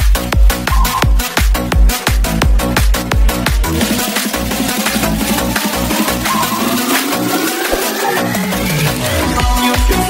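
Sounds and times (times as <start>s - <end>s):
electronic dance music: 0.0s - 10.0s
rising synth sweep: 2.2s - 10.0s.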